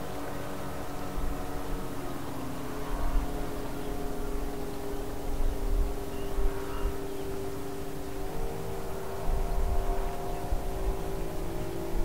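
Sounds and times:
distant engine droning: 0.0 - 12.0
wind on microphone: 2.8 - 12.0.

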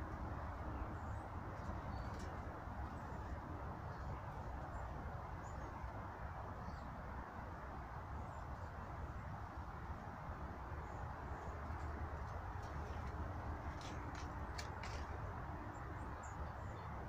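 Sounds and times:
small birds chirping: 0.6 - 5.9.

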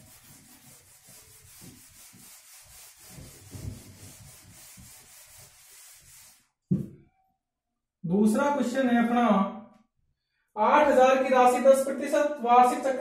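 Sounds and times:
whiteboard being wiped: 0.0 - 6.6.

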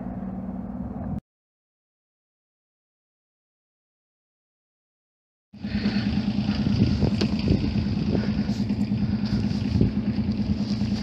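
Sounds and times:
boat engine idling: 0.0 - 1.2, 5.6 - 11.0.

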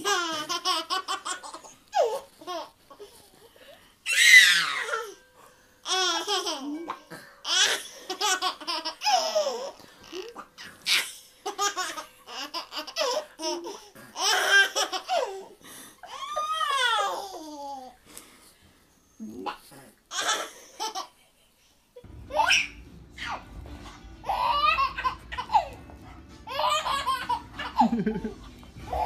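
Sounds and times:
toddler laughing: 0.0 - 3.3, 5.9 - 18.0, 24.3 - 25.8, 26.5 - 29.0.

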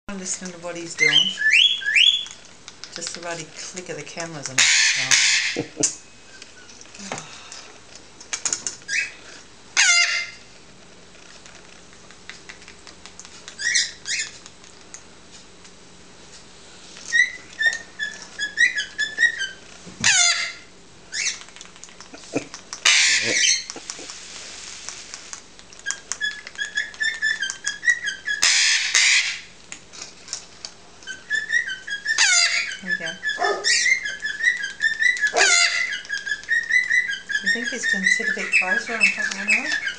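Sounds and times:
parrot chicks chirping: 0.3 - 6.9, 8.2 - 10.5, 11.2 - 15.1, 17.0 - 39.9
parrot harsh squawks: 4.6 - 5.9, 9.8 - 10.4, 17.1 - 21.3, 22.8 - 23.7, 27.0 - 29.5, 31.2 - 39.9
parrot falling call: 22.8 - 23.7, 35.3 - 35.9.

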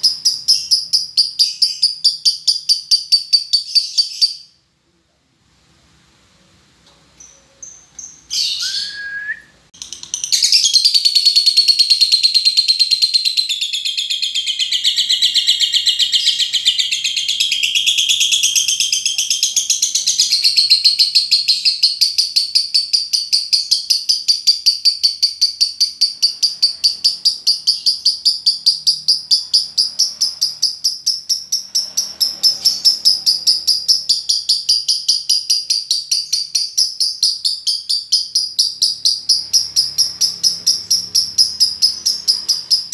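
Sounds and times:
bird chirps: 0.0 - 4.6, 7.1 - 42.9
bird chattering trill: 9.8 - 42.9.

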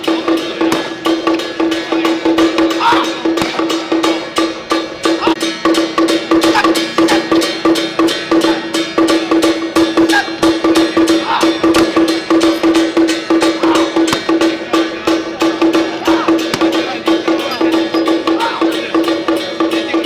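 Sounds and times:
fast sharp drum strokes: 0.0 - 20.0
ringing pitched percussion tone: 0.0 - 20.0.

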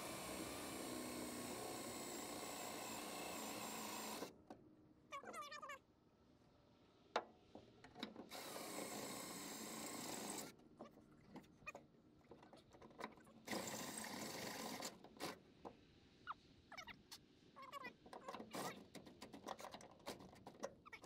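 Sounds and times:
power drill boring through metal: 0.0 - 4.3, 8.3 - 10.5, 13.4 - 15.4
small clicks and knocks: 10.8 - 13.7, 18.0 - 20.8.

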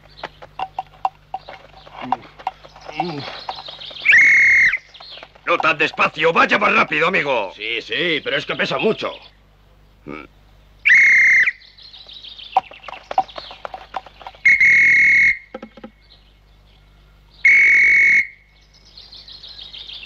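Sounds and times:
faint chirping: 0.0 - 17.6
shrill whistle blasts: 10.8 - 11.6, 14.4 - 15.6, 17.5 - 18.5.

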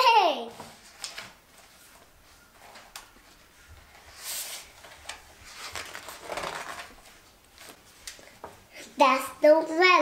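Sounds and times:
book page turning: 0.6 - 8.4.

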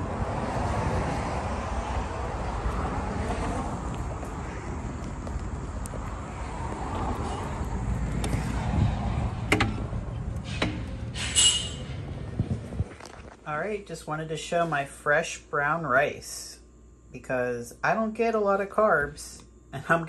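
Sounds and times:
car rumbling on road: 0.0 - 13.2.

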